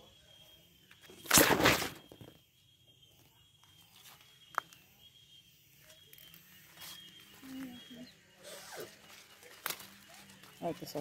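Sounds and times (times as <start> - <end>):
leaves rustling: 6.1 - 11.0.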